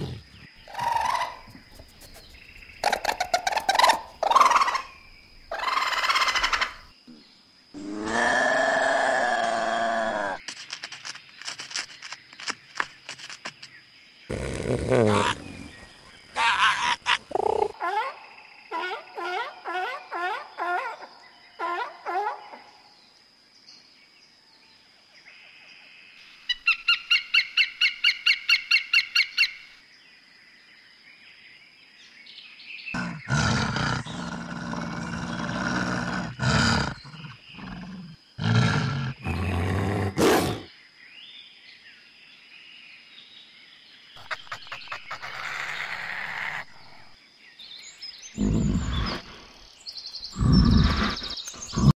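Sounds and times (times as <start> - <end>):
rapid high animal chirps: 0.0 - 6.8
animal growls and roars: 7.8 - 10.4, 33.0 - 40.7, 48.4 - 49.6, 50.3 - 52.0.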